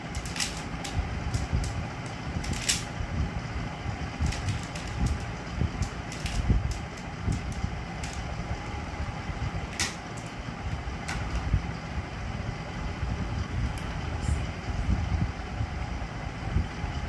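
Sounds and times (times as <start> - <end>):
plastic puzzle clicking: 0.0 - 2.9, 4.2 - 8.3
low rumble: 0.0 - 17.0.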